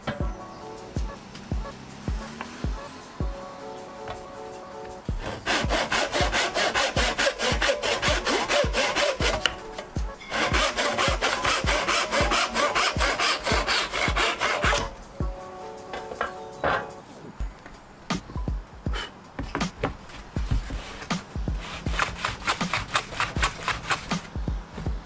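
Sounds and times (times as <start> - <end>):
hand saw cutting wood: 5.1 - 15.0, 20.1 - 24.4.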